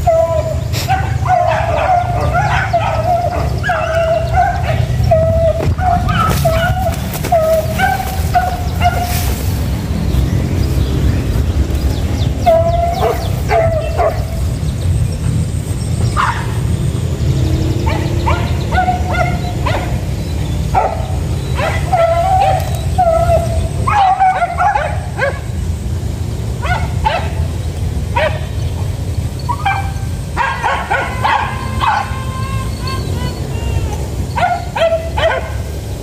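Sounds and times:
dogs yelping and baying: 0:00.0 - 0:15.4, 0:16.0 - 0:16.7, 0:17.8 - 0:25.6, 0:26.6 - 0:28.6, 0:29.3 - 0:36.0
steady low rumble: 0:00.0 - 0:31.1.

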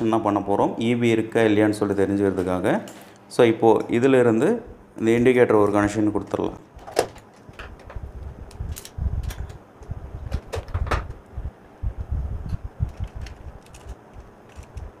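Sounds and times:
wire being stripped and twisted: 0:12.5 - 0:15.0.

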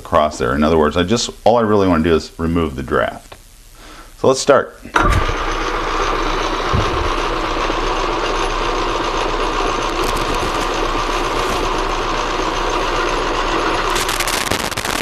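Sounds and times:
metal lathe running: 0:05.0 - 0:14.2.

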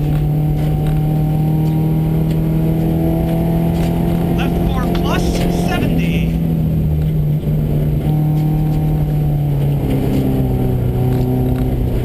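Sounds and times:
car engine at high revs: 0:00.0 - 0:12.0
tyres rumbling on dirt road: 0:00.0 - 0:12.0.

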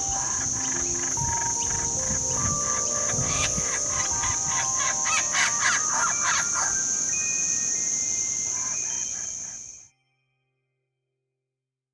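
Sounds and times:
insect buzz: 0:00.0 - 0:09.9.

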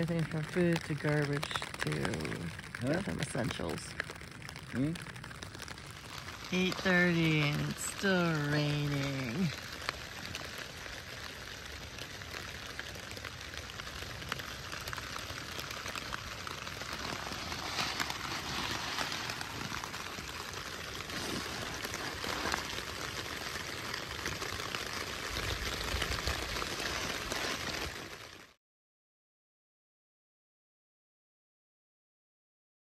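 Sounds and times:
rain on a tent: 0:00.0 - 0:28.6.

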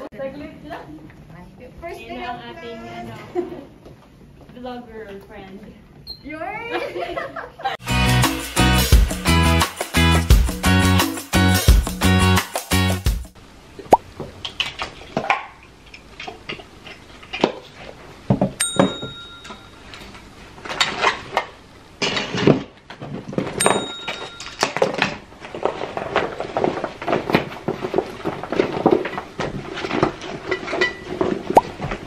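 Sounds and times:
ringing metallic clinks: 0:18.6 - 0:19.8, 0:23.6 - 0:24.8.

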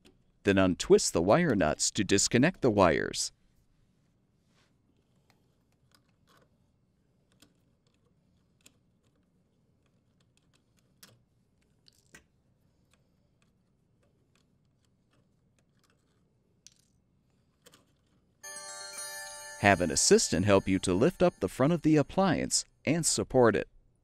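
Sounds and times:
small plastic clicks and rustles: 0:05.0 - 0:06.6, 0:07.2 - 0:18.4.

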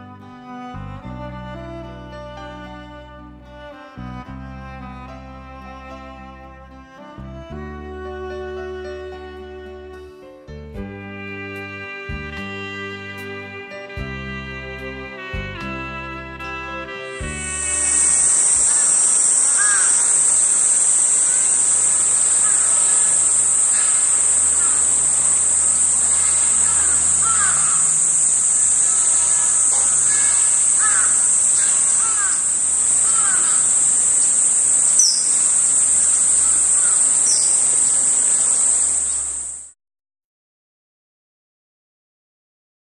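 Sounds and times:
faint bird calls: 0:17.1 - 0:39.7
insects chorus: 0:17.1 - 0:39.7.

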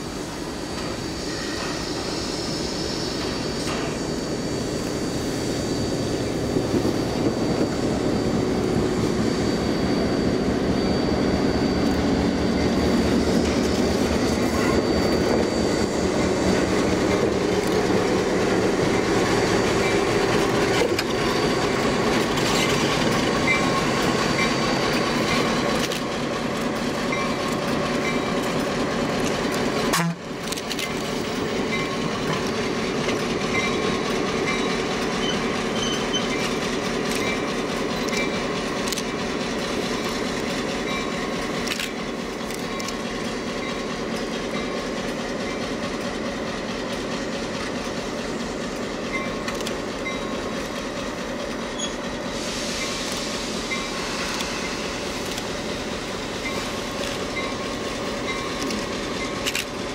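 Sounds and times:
diesel locomotive engine rumble: 0:00.0 - 0:59.9
wheels clicking over rail joints: 0:24.4 - 0:52.2, 0:53.1 - 0:59.9.

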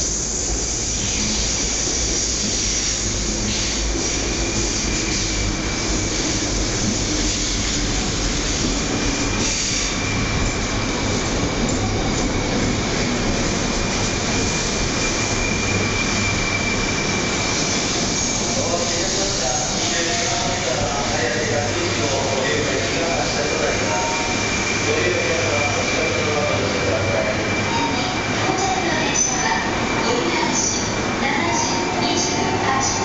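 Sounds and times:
train wheels rumbling: 0:00.0 - 0:33.0
high brake squeal: 0:09.0 - 0:10.9, 0:14.3 - 0:21.4, 0:22.1 - 0:31.0.

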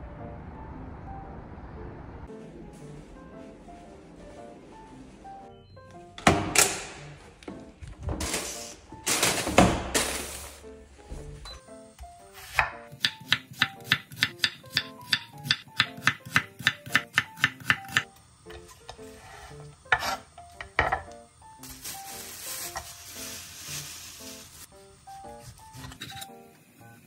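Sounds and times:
soft background music: 0:00.0 - 0:27.0
knife slicing onion on board: 0:12.4 - 0:18.1, 0:19.8 - 0:20.3
plastic bag crinkling: 0:21.6 - 0:24.7.

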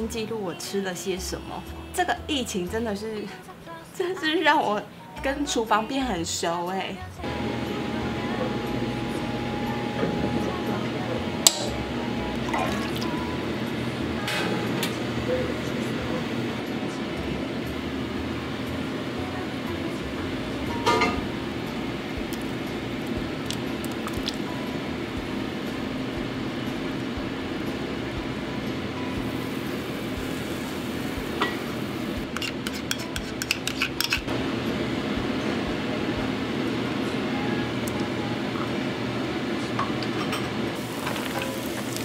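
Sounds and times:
steady low hum: 0:07.2 - 0:32.4
utensils clinking against metal pot: 0:20.7 - 0:21.2, 0:31.4 - 0:31.7, 0:32.3 - 0:34.3.

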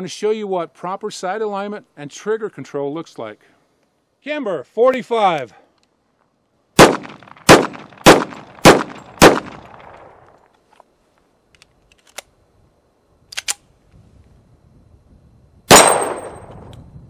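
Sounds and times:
pistol shots: 0:06.8 - 0:10.2, 0:15.7 - 0:16.5
pistol handling clicks: 0:11.5 - 0:12.3, 0:13.3 - 0:13.6.

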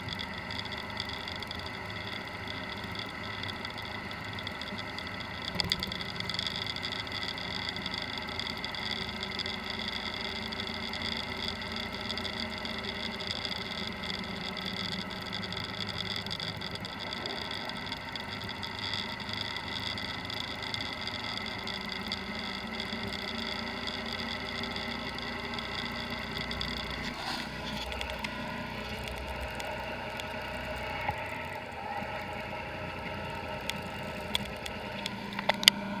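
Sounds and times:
motorbike engine running: 0:00.0 - 0:36.0
road and wind noise: 0:00.0 - 0:36.0.

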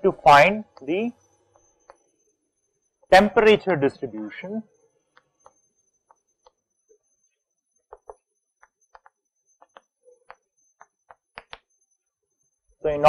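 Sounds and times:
chalk tapping on blackboard: 0:07.8 - 0:11.7.

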